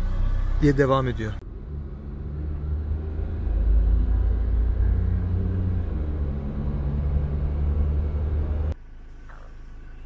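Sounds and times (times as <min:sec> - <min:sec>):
car engine and tyres rumbling: 0:00.0 - 0:10.0.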